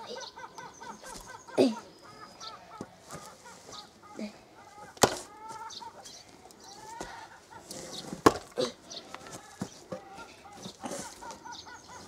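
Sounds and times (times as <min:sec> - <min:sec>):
chickens clucking: 0:00.0 - 0:12.0
axe chopping into log: 0:05.0 - 0:05.3, 0:08.2 - 0:08.5.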